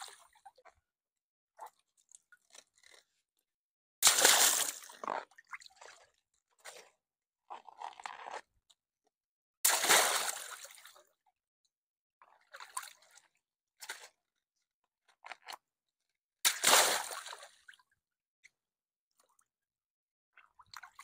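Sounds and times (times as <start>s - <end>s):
water splashing into a pool: 4.0s - 6.1s, 9.6s - 10.9s, 16.5s - 17.8s.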